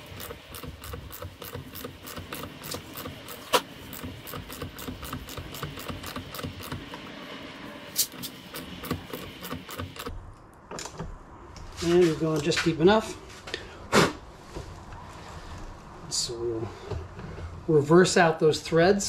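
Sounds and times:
hand ratchet clicking: 0.0 - 7.0, 8.0 - 10.1.

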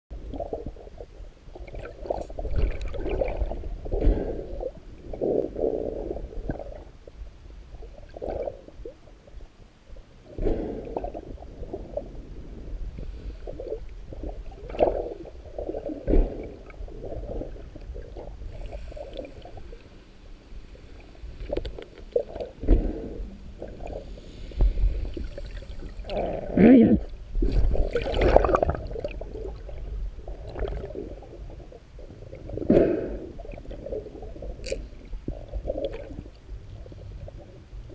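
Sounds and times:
muffled underwater swishing: 10.3 - 26.7.

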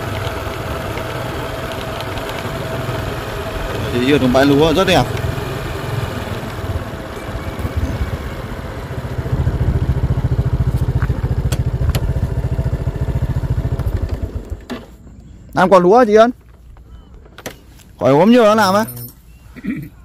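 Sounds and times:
motorbike engine puttering: 0.0 - 15.0.

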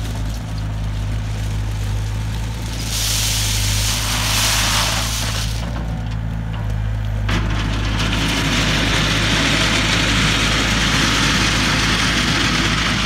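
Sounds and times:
loader engine running: 0.0 - 13.0
bucket scraping gravel: 2.4 - 5.9.

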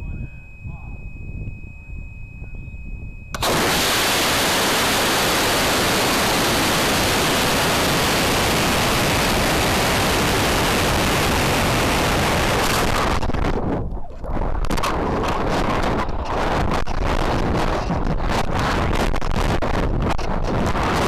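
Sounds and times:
air rushing past rocket: 3.3 - 13.6
rocket motor roar: 3.3 - 13.6.

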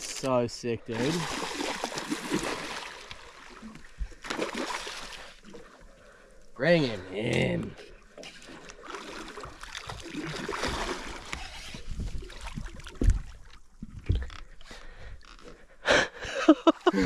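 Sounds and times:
fish splashing at surface: 0.9 - 3.6, 4.2 - 5.6.

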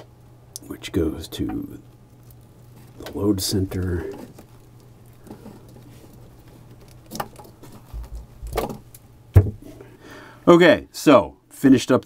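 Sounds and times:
steady low hum: 0.0 - 12.0
wires rustling: 0.9 - 9.9.

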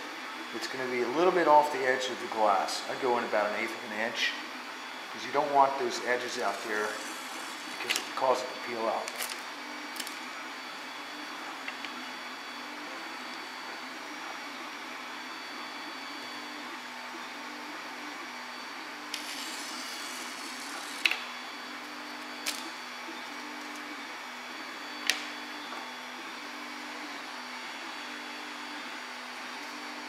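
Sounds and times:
machine whir: 2.7 - 30.0
blade scratching on glass: 6.4 - 8.0, 19.1 - 21.1.

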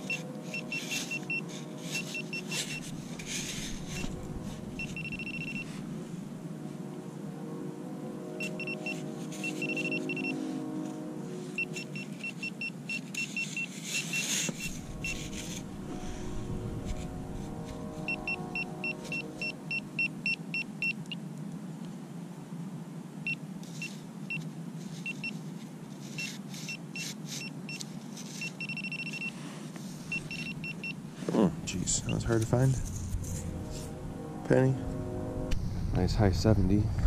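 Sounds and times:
hand scraping sand: 0.0 - 5.9.

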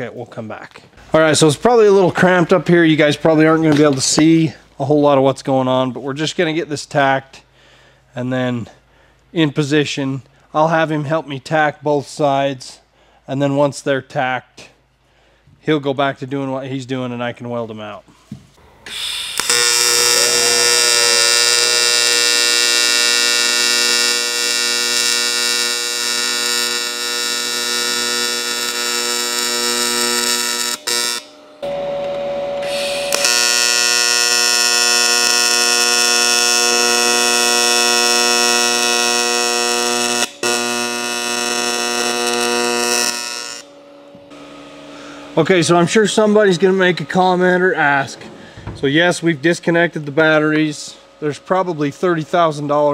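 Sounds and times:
welding arc buzzing: 18.9 - 49.5.

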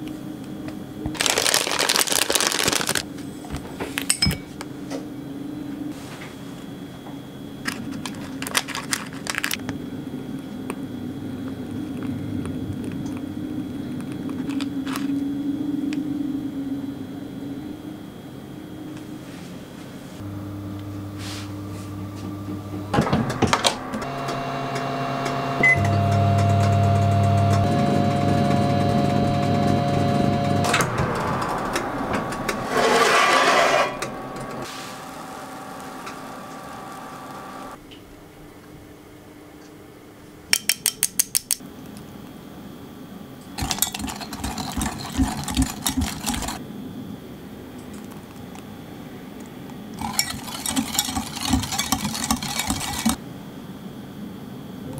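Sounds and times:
microwave oven humming: 20.2 - 32.9, 33.6 - 37.8
whisk beating batter in glass bowl: 43.6 - 46.6, 50.0 - 53.2.

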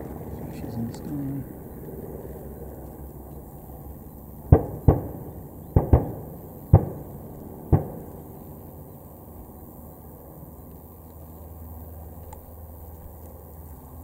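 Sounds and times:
steady low rumble: 0.0 - 14.0
pyrotechnic bangs: 4.4 - 8.4.

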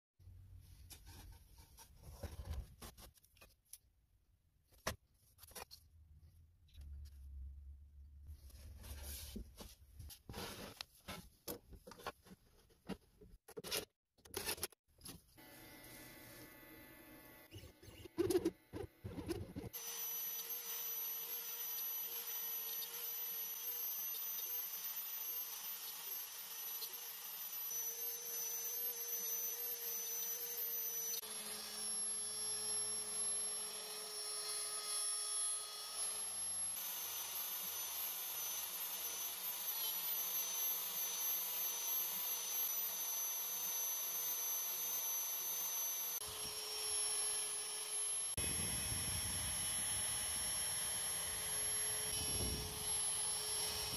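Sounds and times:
router cutting wood whining: 15.4 - 53.9.

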